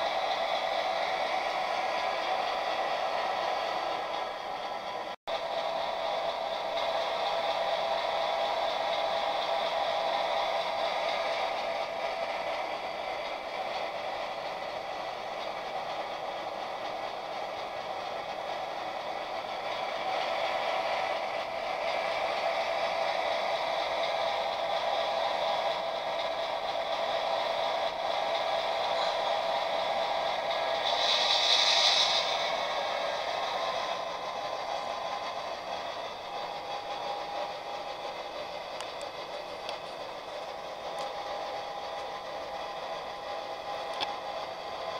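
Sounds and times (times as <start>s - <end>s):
model train whirring: 0.0s - 44.9s.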